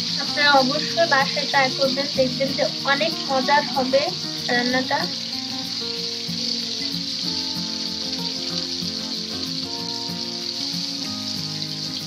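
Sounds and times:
background music of held notes: 0.0 - 12.0
fish sizzling in a frying pan: 0.0 - 12.0.

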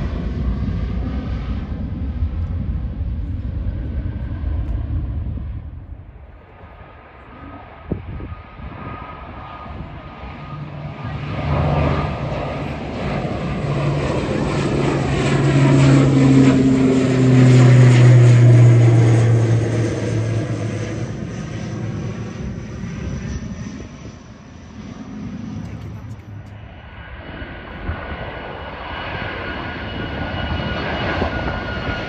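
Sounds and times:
turboprop airliner passing overhead: 0.0 - 32.0.

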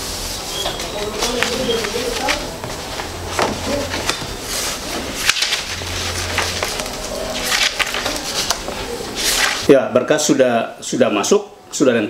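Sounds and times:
paper rustling: 0.1 - 9.7.

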